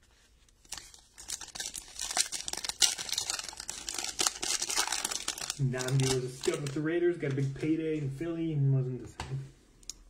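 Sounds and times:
foil wrapper tearing and crinkling: 0:00.6 - 0:06.8.

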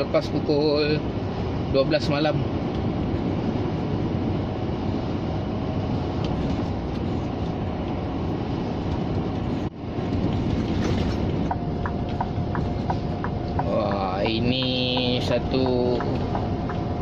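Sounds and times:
road noise: 0:00.0 - 0:17.0
truck diesel engine drone: 0:00.0 - 0:17.0
turn signal ticking: 0:11.2 - 0:17.0.

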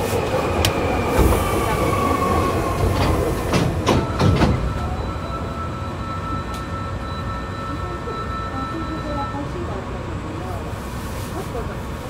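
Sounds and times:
train rumbling in tunnel: 0:00.0 - 0:12.0
wheels clacking over rail joints: 0:00.6 - 0:04.8.

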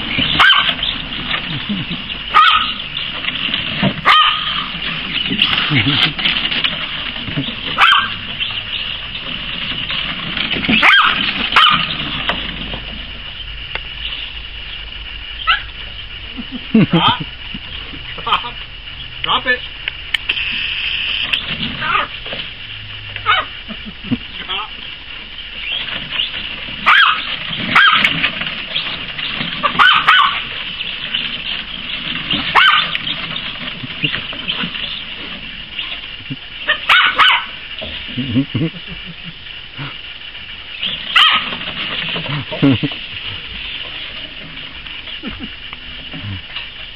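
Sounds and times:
high-pitched whine: 0:00.0 - 0:36.9, 0:37.5 - 0:46.9
puppy yelp: 0:00.2 - 0:00.9, 0:02.3 - 0:02.8, 0:04.0 - 0:04.8, 0:07.8 - 0:08.2, 0:10.7 - 0:12.0, 0:15.4 - 0:15.7, 0:21.8 - 0:22.1, 0:23.2 - 0:23.6, 0:26.8 - 0:28.2, 0:29.6 - 0:30.5, 0:32.4 - 0:33.1, 0:36.7 - 0:37.6, 0:41.1 - 0:41.6
puppy yipping: 0:00.3 - 0:00.9, 0:02.3 - 0:02.8, 0:04.0 - 0:04.7, 0:07.8 - 0:08.2, 0:10.8 - 0:12.0, 0:15.4 - 0:15.7, 0:21.8 - 0:22.1, 0:23.2 - 0:23.5, 0:26.8 - 0:28.2, 0:29.6 - 0:30.5, 0:32.5 - 0:33.1, 0:36.7 - 0:37.5, 0:41.1 - 0:41.6.

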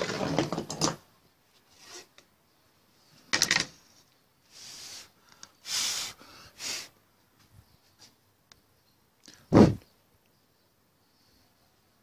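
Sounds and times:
wooden clatter: 0:00.0 - 0:01.1.

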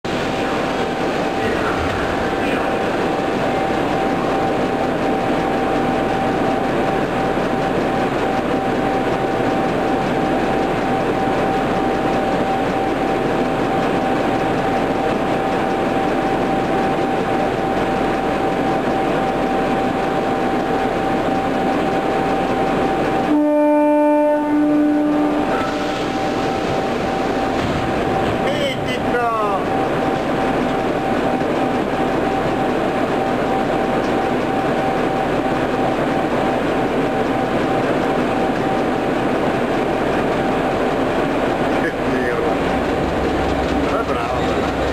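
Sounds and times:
metro train running noise: 0:00.0 - 0:44.9
train horn: 0:23.2 - 0:25.9.

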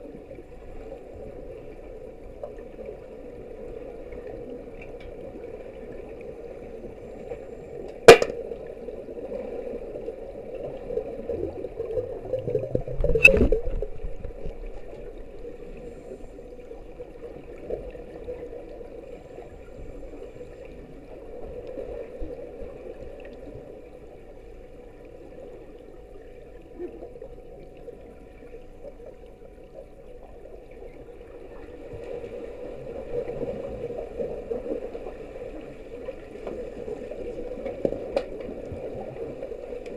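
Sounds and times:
muffled underwater water noise: 0:00.0 - 0:39.9
sharp knocks: 0:08.1 - 0:08.4.

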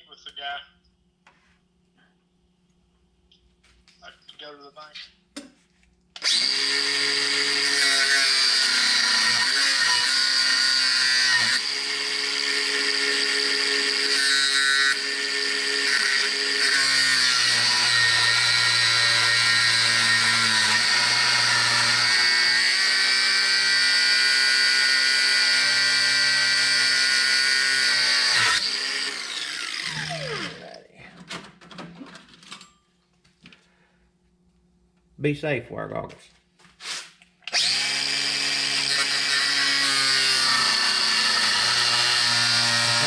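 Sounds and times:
power tool cutting steel rod: 0:06.2 - 0:30.8, 0:36.8 - 0:43.0.

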